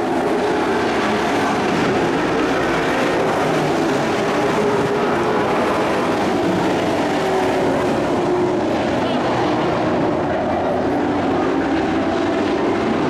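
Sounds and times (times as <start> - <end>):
race truck engines droning: 0.0 - 13.0.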